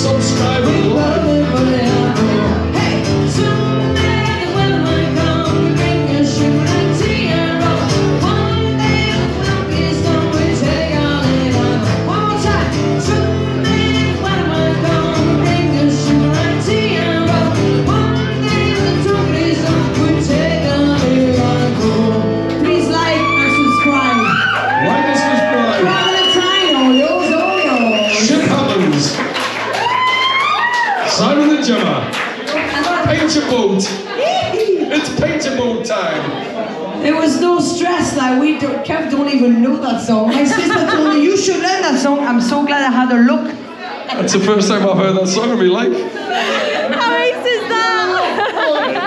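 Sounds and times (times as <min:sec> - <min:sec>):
upright double bass plucked: 0:00.0 - 0:23.9
acoustic guitar strummed: 0:00.0 - 0:24.0
person singing: 0:00.0 - 0:25.0.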